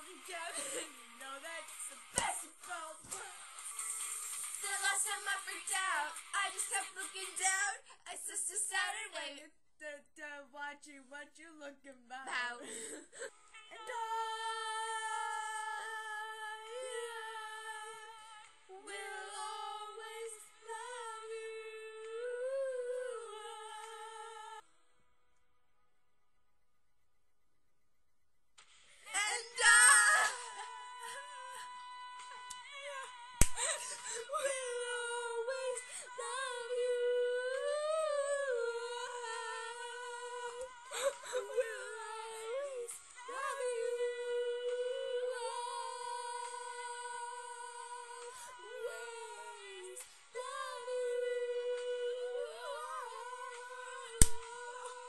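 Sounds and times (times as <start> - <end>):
girl singing a long high note: 12.1 - 24.6, 29.1 - 55.0.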